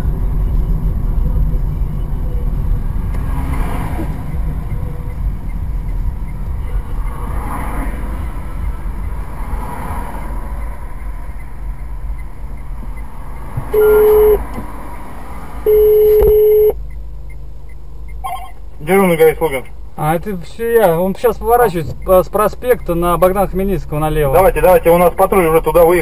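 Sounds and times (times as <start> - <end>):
car cabin rumble: 0.0 - 9.6, 10.4 - 26.0
telephone line tones: 13.8 - 14.4, 15.7 - 16.8, 18.2 - 18.6.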